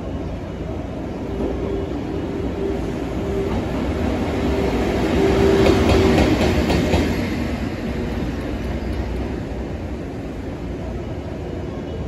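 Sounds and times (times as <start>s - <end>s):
electric locomotive hum: 0.0s - 12.0s.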